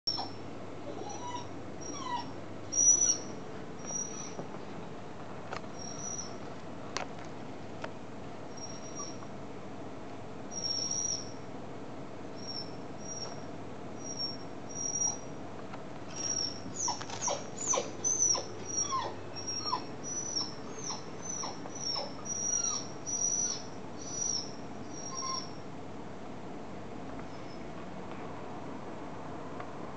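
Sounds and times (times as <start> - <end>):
dog whining: 0.1 - 4.5, 5.7 - 6.4, 8.5 - 9.2, 10.5 - 11.4, 12.4 - 15.3, 16.1 - 25.6, 27.3 - 27.7.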